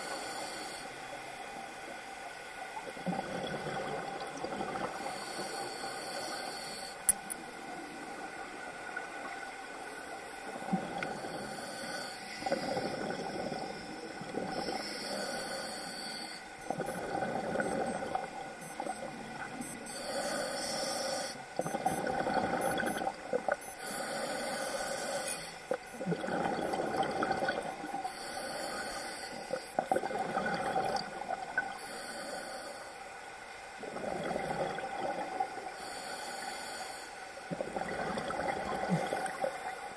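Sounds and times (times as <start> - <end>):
regulator hissing on inhalation: 14.6 - 16.4, 19.9 - 21.4, 23.8 - 25.6
bubbling on exhalation: 26.0 - 27.7.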